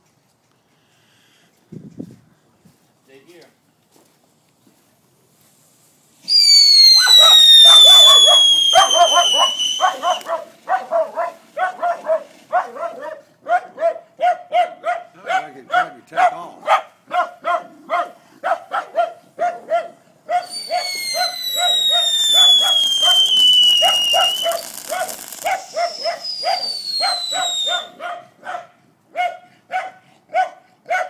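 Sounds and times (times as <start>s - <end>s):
firework hissing: 5.6s - 12.5s, 20.4s - 28.0s
firework whistles sliding down: 6.1s - 10.4s, 20.4s - 28.0s
dog barking: 8.0s - 21.3s, 23.8s - 31.0s.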